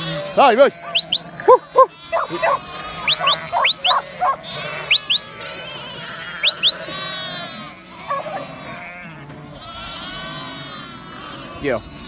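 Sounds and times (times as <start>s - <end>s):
sheep bleating: 0.0s - 12.0s
sharp rising whistles: 1.0s - 1.3s, 3.0s - 4.0s, 4.9s - 5.3s, 6.4s - 6.9s.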